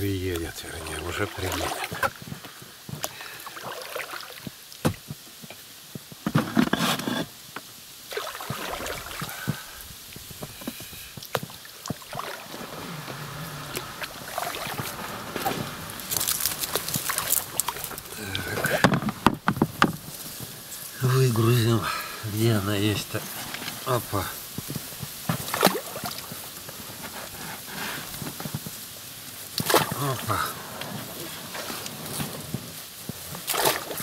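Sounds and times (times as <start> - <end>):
oars splashing in water: 0.4 - 5.1, 8.1 - 34.0
oars knocking against boat: 10.2 - 20.5.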